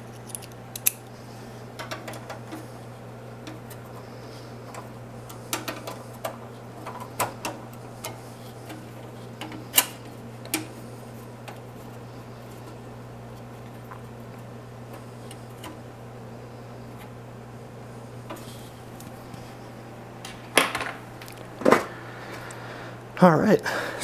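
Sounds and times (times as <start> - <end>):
clicks and knocks handling computer parts: 1.8 - 2.6, 4.7 - 10.7.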